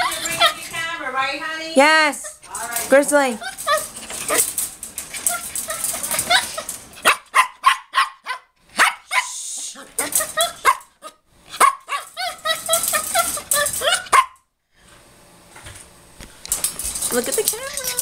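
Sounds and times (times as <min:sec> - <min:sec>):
puppy yelping: 0:00.0 - 0:00.7, 0:03.4 - 0:04.5, 0:05.1 - 0:14.4.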